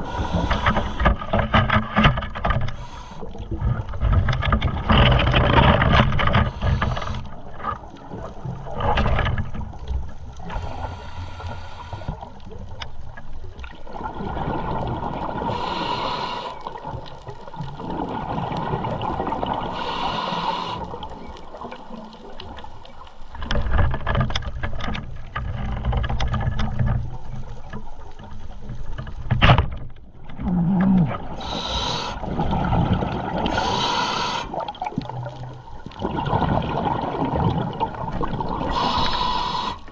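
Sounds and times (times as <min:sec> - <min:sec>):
regulator hissing on inhale: 0:00.0 - 0:01.1, 0:02.7 - 0:03.4, 0:06.5 - 0:07.3, 0:10.5 - 0:12.3, 0:15.4 - 0:16.8, 0:19.7 - 0:21.1, 0:31.4 - 0:32.3, 0:33.5 - 0:34.7, 0:38.7 - 0:39.9
gurgling exhaled bubbles: 0:12.2 - 0:23.7, 0:30.3 - 0:39.9.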